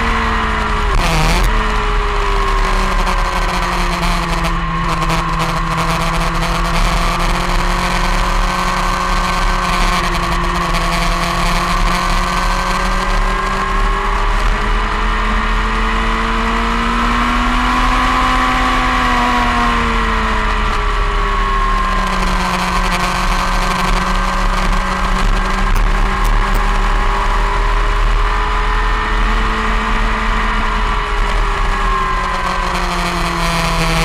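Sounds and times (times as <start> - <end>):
motorcycle engine at speed: 0.0 - 34.0.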